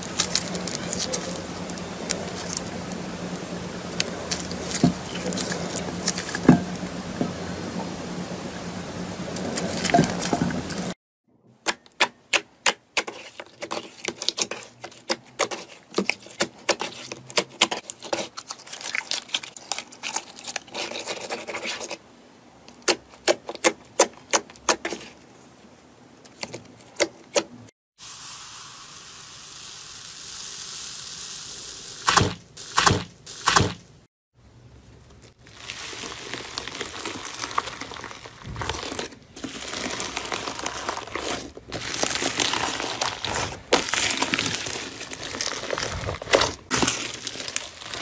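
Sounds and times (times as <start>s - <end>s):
slime squishing: 0.0s - 6.5s, 13.0s - 22.0s, 35.2s - 48.0s.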